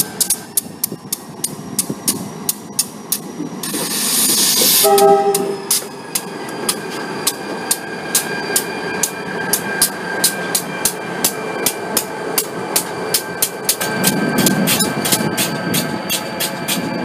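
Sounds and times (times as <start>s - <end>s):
diesel locomotive rumbling past: 0.0s - 17.0s
crossing bell dinging: 4.8s - 17.0s.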